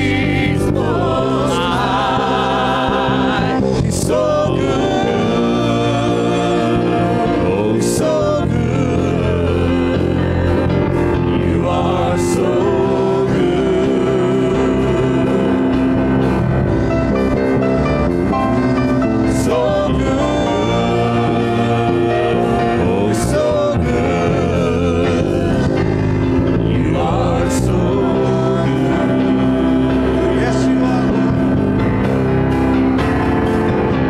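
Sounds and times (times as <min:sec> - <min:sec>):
several voices singing: 0:00.0 - 0:34.0
worship band playing: 0:00.0 - 0:34.0.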